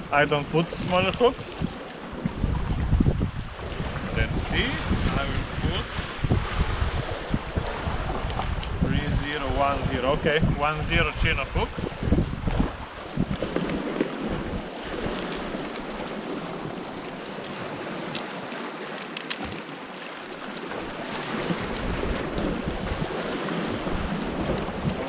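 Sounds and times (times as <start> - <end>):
surf on rocky shore: 0.0 - 25.0
wind: 0.0 - 25.0.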